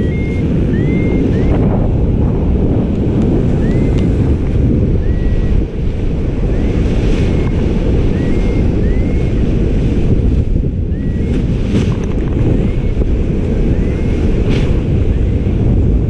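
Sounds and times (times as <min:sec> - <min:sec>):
faint whistle-like tones: 0:00.0 - 0:01.8, 0:03.6 - 0:04.0, 0:05.0 - 0:05.6, 0:06.4 - 0:09.4, 0:10.9 - 0:11.5, 0:12.4 - 0:13.0, 0:13.6 - 0:14.2
wind buffeting microphone: 0:00.0 - 0:16.0.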